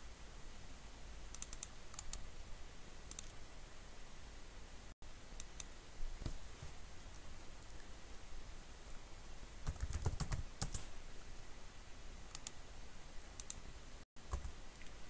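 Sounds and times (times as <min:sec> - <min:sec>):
computer keyboard typing: 0:01.3 - 0:02.2, 0:09.6 - 0:10.8, 0:14.3 - 0:14.5.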